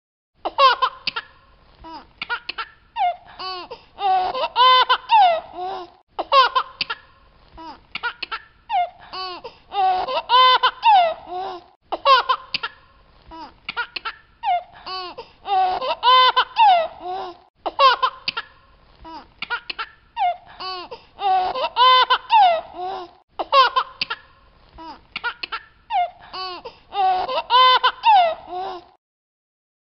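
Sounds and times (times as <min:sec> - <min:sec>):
baby laughing: 0:00.4 - 0:01.3, 0:01.9 - 0:28.9.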